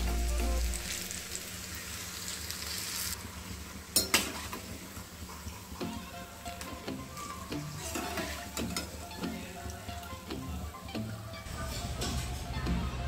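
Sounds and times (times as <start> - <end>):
food deep-frying in hot oil: 0.0 - 10.7.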